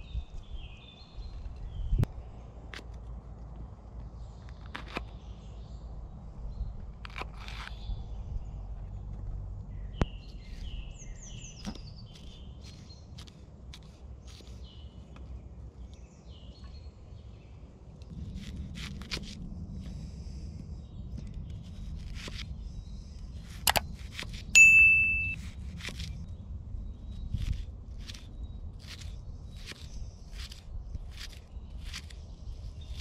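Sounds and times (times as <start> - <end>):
small birds chirping: 0.0 - 33.0
electronic ding: 24.6 - 25.4
knife cutting vegetables: 25.1 - 26.2, 27.3 - 33.0.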